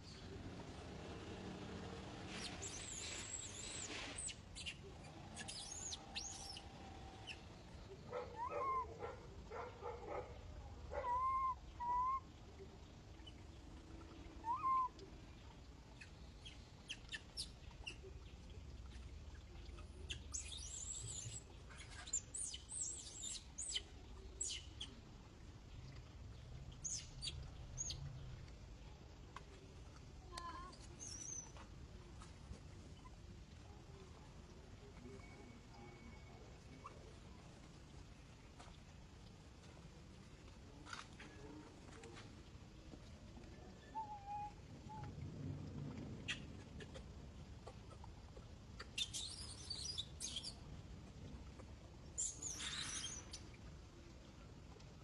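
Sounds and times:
baby monkey squeaky calls: 0:05.4 - 0:06.6, 0:08.4 - 0:08.8, 0:49.0 - 0:50.5.

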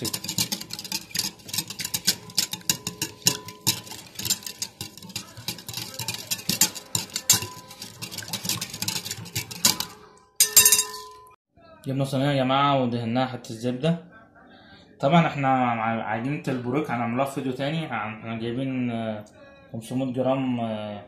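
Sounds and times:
batter slapping: 0:00.0 - 0:10.2
whisk clicking against bowl: 0:00.0 - 0:11.2.

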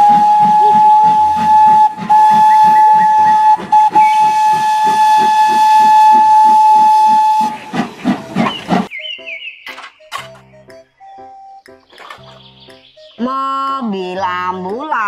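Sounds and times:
steam locomotive whistle: 0:00.0 - 0:09.4
locomotive rhythmic chuffing: 0:00.0 - 0:15.0.

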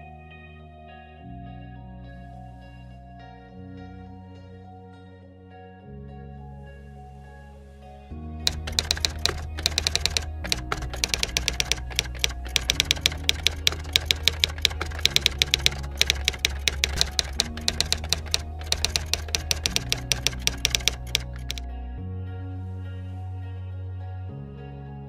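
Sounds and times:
music of sustained low chords: 0:00.0 - 0:08.4, 0:21.6 - 0:25.0
keyboard typing clicks: 0:08.5 - 0:21.6.

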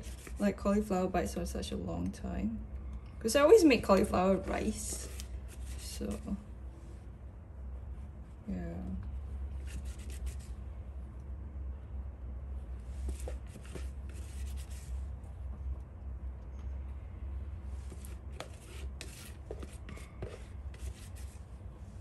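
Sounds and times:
low steady hum: 0:00.0 - 0:22.0
spatula scraping: 0:17.8 - 0:21.4.

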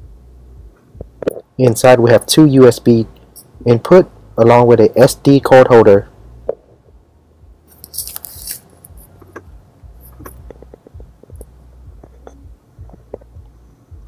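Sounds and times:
low steady hum: 0:00.0 - 0:14.0
plastic bag rustling: 0:07.7 - 0:08.9.

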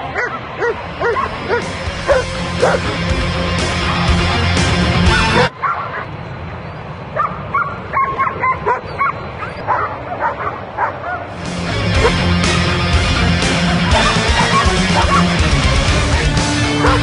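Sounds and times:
dog barking: 0:00.2 - 0:02.9, 0:05.3 - 0:06.1, 0:07.2 - 0:11.3, 0:12.0 - 0:12.2, 0:14.0 - 0:15.4, 0:16.8 - 0:17.0
rock music: 0:00.8 - 0:05.5, 0:11.4 - 0:17.0.

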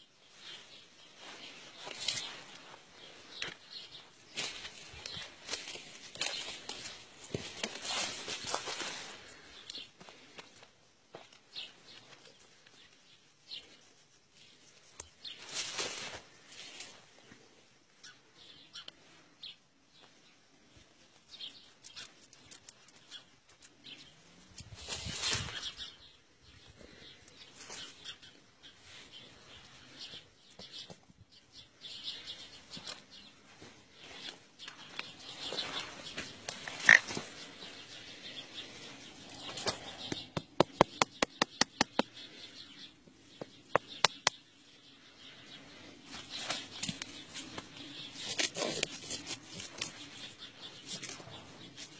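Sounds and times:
hands rustling and scraping: 0:00.3 - 0:17.4, 0:45.8 - 0:51.9.

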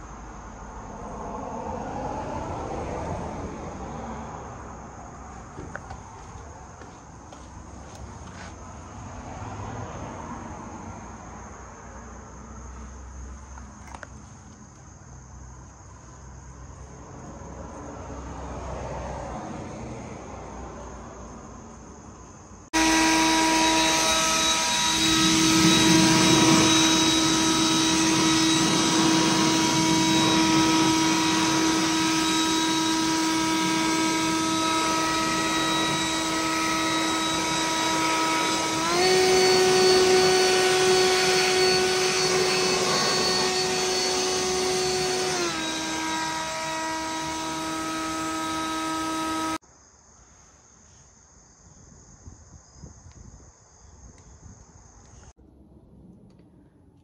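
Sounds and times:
motor-driven machine whining: 0:22.8 - 0:49.6.

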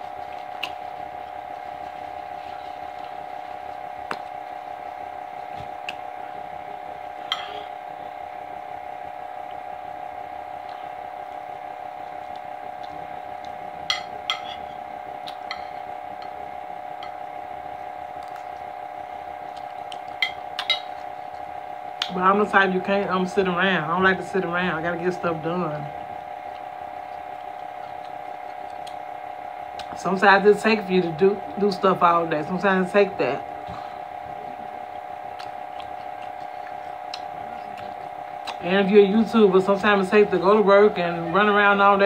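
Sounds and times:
steady hum: 0:00.0 - 0:42.0.

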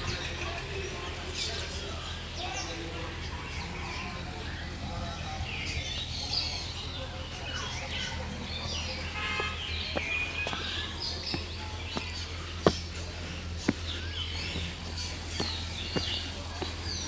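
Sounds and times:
birds chirping: 0:00.0 - 0:17.0
low microphone rumble: 0:00.0 - 0:17.0
footsteps on brick and earth: 0:03.4 - 0:17.0.

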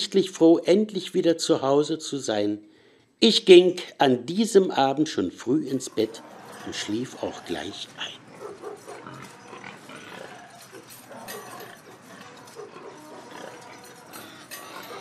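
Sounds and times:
farmyard animal calls: 0:05.1 - 0:15.0
pigs grunting: 0:05.4 - 0:15.0.

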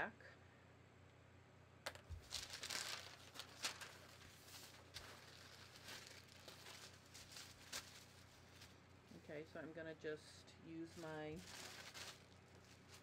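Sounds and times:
paper sheets rustling: 0:02.1 - 0:08.8, 0:10.9 - 0:13.0.

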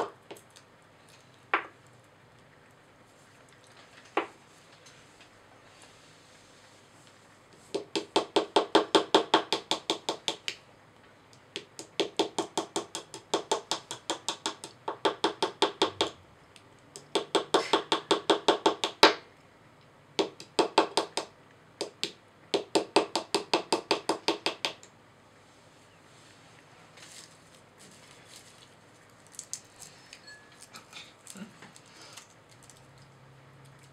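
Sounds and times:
plastic hammer tapping plaster: 0:07.7 - 0:10.6, 0:11.5 - 0:16.2, 0:17.0 - 0:19.2, 0:20.2 - 0:24.9.

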